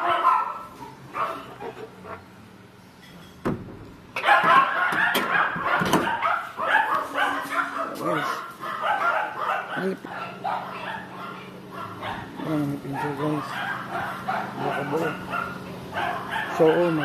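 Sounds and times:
thump: 0:03.4 - 0:03.8
puppies yipping and whimpering: 0:04.2 - 0:17.0.

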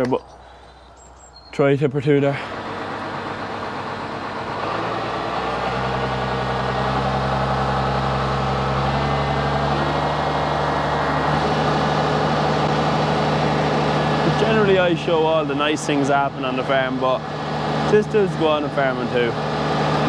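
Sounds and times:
tractor engine idling: 0:00.0 - 0:20.0.

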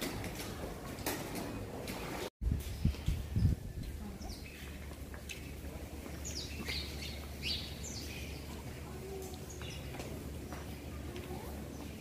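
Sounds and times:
small birds chirping: 0:02.6 - 0:12.0.

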